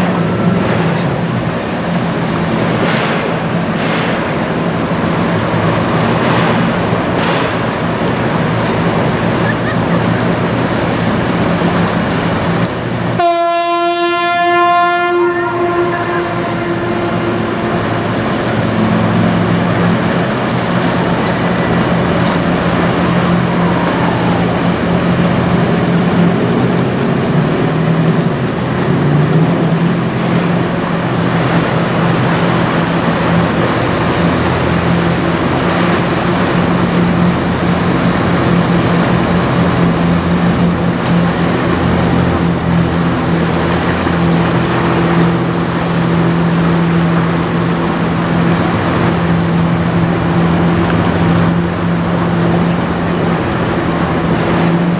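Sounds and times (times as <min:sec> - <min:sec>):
ship engine drone: 0:00.0 - 0:54.9
water rushing along hull: 0:00.0 - 0:54.9
ship horn blast: 0:12.8 - 0:27.4.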